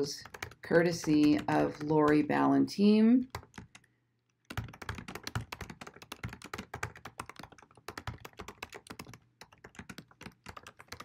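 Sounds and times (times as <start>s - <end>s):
rapid typing on computer keyboard: 0.0s - 2.5s, 3.3s - 11.0s.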